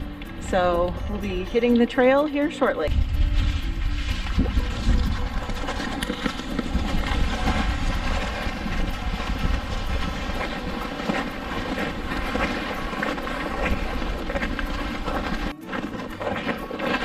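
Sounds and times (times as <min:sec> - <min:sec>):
sleds scraping over snow: 0:03.0 - 0:17.0
snowshoe steps crunching: 0:03.2 - 0:17.0.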